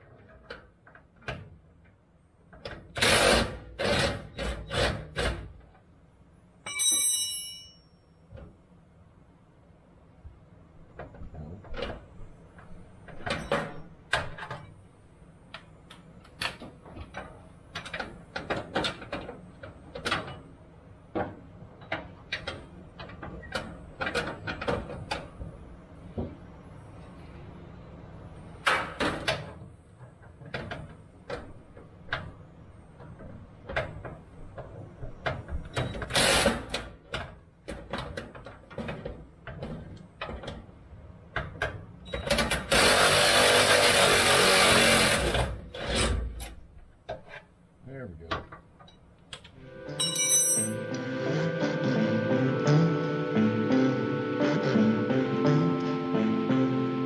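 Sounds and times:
metallic clinks of hand tools: 0:06.7 - 0:07.9, 0:50.0 - 0:50.8.

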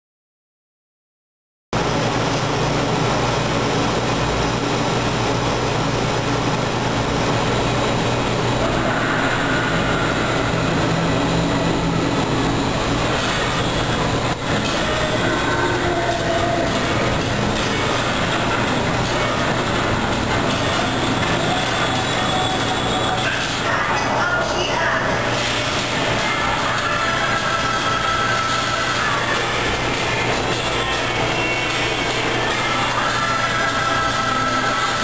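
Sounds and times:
tram rumble and hum: 0:01.8 - 0:34.9
tram squeals: 0:08.6 - 0:29.3.

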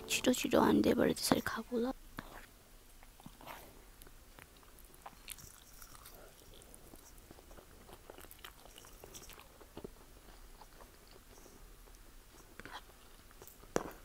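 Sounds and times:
woman chewing and slurping noodles: 0:04.6 - 0:13.7.

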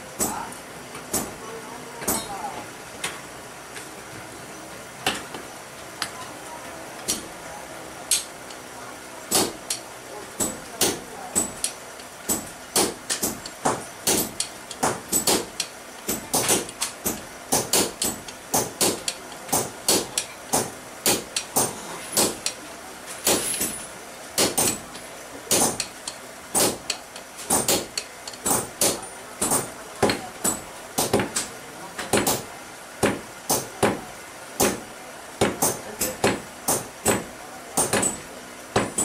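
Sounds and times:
hammer striking steel on anvil: 0:00.2 - 0:00.4, 0:01.1 - 0:01.4, 0:02.0 - 0:02.4, 0:09.3 - 0:09.8, 0:10.4 - 0:22.6, 0:24.4 - 0:24.8, 0:26.6 - 0:31.4, 0:35.4 - 0:39.0.

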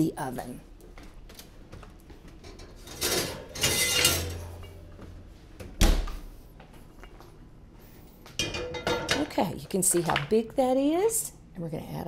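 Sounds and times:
skillet scraping metal rack: 0:02.5 - 0:04.7.

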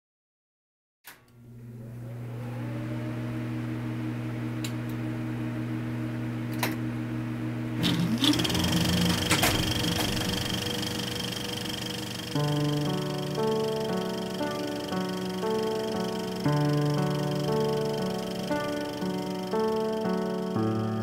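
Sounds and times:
projector motor hum: 0:01.2 - 0:21.0
projector whine and whirring clatter: 0:01.2 - 0:21.0
projector clicks: 0:07.8 - 0:20.7.

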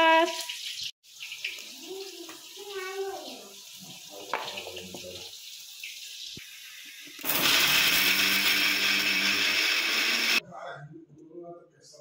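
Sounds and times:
electric mixer grinder running: 0:07.2 - 0:10.4.

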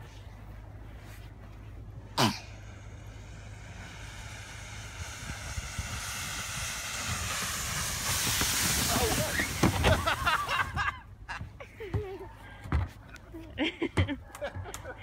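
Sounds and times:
kayak hull scraping on snow: 0:03.3 - 0:10.8.

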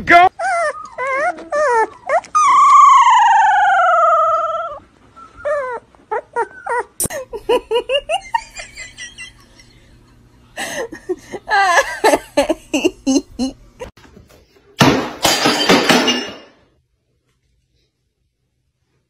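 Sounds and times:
dog howling: 0:00.4 - 0:04.8
person laughing: 0:07.0 - 0:10.0, 0:10.6 - 0:13.9.

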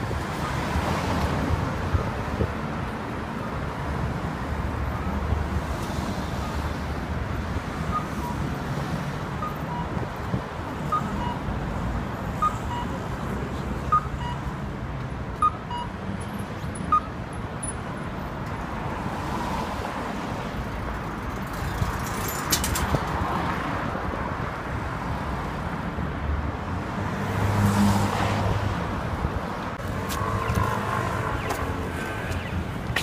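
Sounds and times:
cars passing: 0:00.0 - 0:33.0
vehicle engine rumbling: 0:29.7 - 0:33.0.

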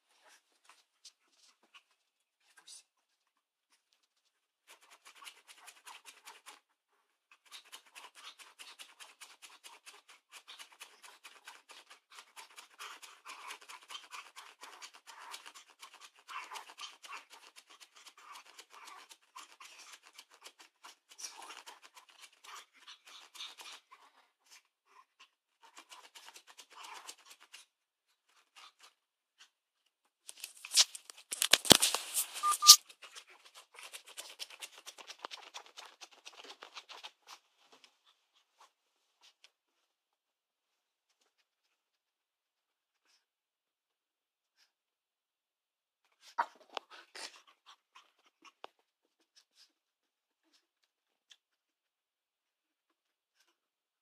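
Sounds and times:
dog claws scratching fabric: 0:04.6 - 0:06.6, 0:07.3 - 0:24.6, 0:25.6 - 0:27.7, 0:30.2 - 0:39.5.

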